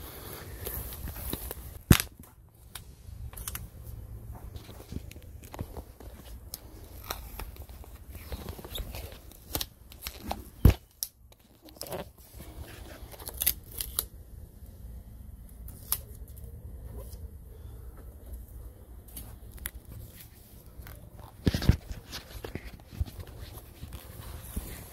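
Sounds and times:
tape ripping and crackling: 0.6s - 3.7s, 4.6s - 14.2s, 15.6s - 17.2s.

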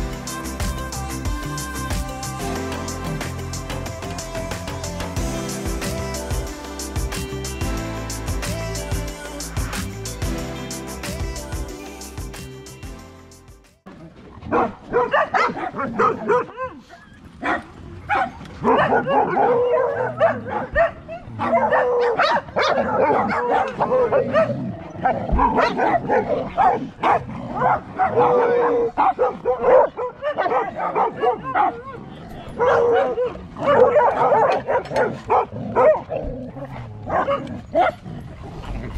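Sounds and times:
dogs barking and whining: 14.4s - 38.2s.

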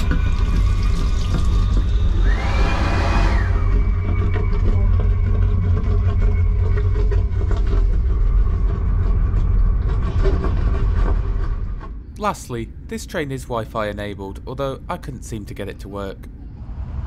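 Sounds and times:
hand dryer blowing: 2.2s - 3.7s
high-speed train rumble: 16.2s - 17.0s.

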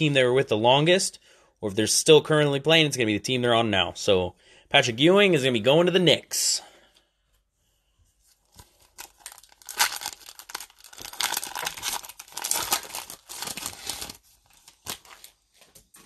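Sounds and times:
foil wrapper tearing and crinkling: 8.5s - 16.0s.

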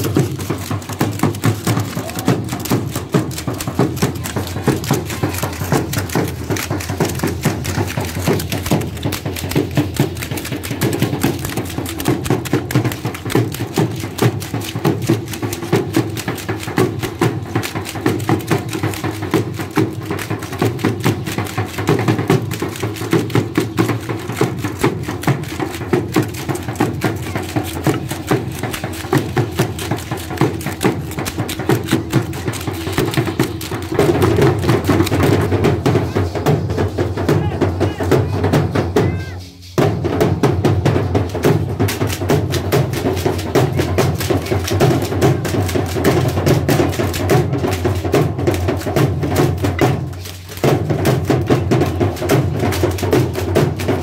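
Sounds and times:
tin-soled sandals stamping: 0.0s - 36.1s
drums beating fast rhythm: 0.0s - 54.0s.

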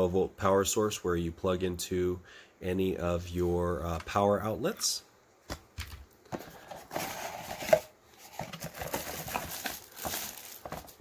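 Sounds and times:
rustling cardboard and packaging: 6.3s - 11.0s.

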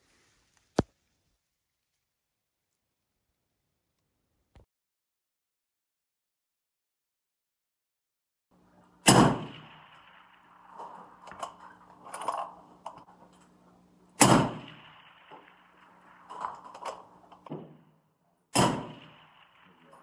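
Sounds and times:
rifle shots with echo: 8.6s - 13.1s, 14.1s - 20.0s
distant steel targets clanking: 8.6s - 20.0s
faint low hum: 8.6s - 20.0s.

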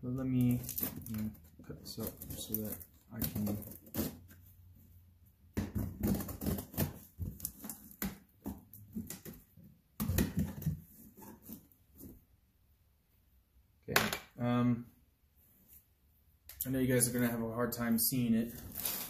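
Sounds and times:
knife cutting cardboard: 2.0s - 4.4s.

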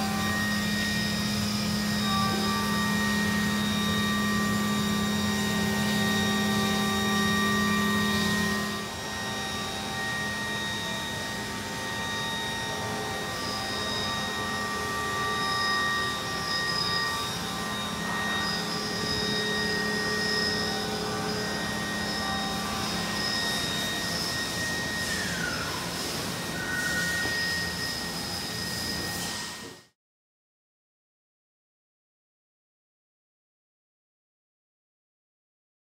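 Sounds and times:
machine hum: 0.0s - 29.4s
high machine whines: 0.0s - 30.0s.

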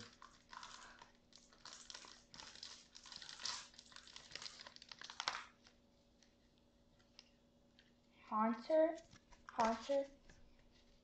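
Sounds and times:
foil wrappers crinkling and tearing: 0.0s - 6.3s, 9.1s - 11.0s.

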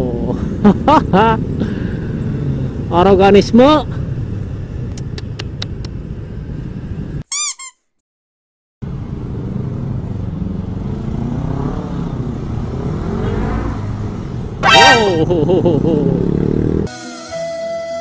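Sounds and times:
road and traffic noise: 0.0s - 7.7s, 8.8s - 16.9s
short high wavering squeak: 7.3s - 7.8s, 14.6s - 15.2s
motorcycle engine accelerating: 9.4s - 16.9s
brief loud pitched sound: 14.6s - 15.4s.

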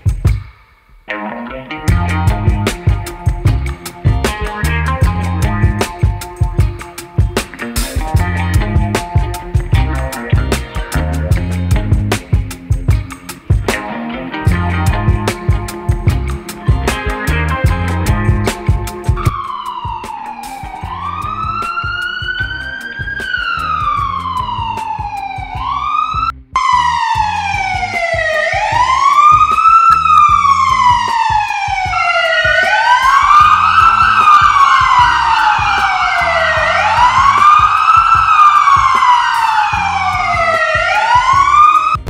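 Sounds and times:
emergency siren wailing: 16.5s - 42.0s
second siren tone: 19.2s - 42.0s.

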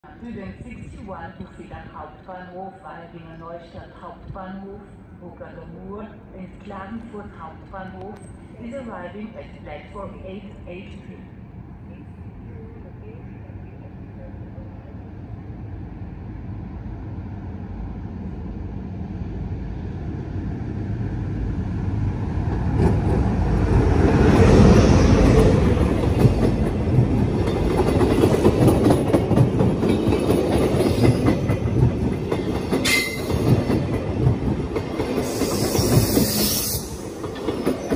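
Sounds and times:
locomotive rumbling past: 13.2s - 37.9s
train wheel squeal: 32.8s - 33.4s, 35.2s - 37.1s
hiss: 35.2s - 37.0s.

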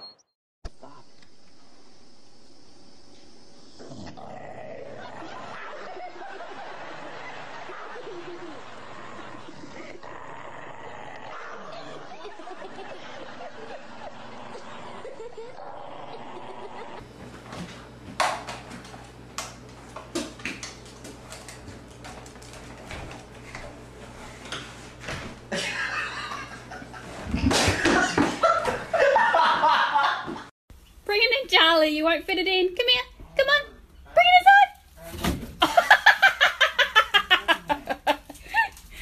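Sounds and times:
people laughing: 4.9s - 10.1s, 11.3s - 17.0s, 25.5s - 30.5s, 35.6s - 39.0s.

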